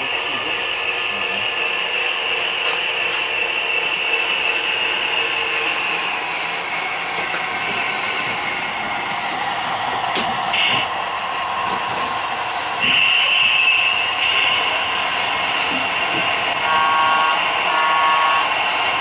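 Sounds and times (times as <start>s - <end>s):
model train whirring on rails: 0.0s - 19.0s.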